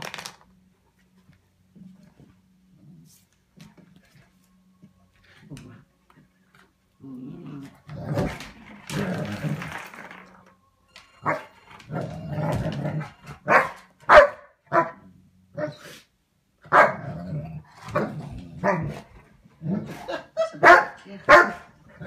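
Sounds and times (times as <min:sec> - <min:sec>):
low growling: 0:07.0 - 0:10.1
puppy barking: 0:11.2 - 0:11.5, 0:13.4 - 0:15.0, 0:16.7 - 0:17.0, 0:20.5 - 0:21.7.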